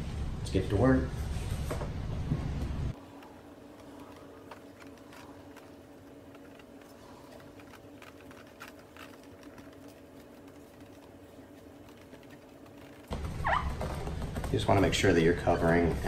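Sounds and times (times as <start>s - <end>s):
steady low hum: 0.0s - 16.0s
cloth rubbing on plastic: 3.6s - 14.3s.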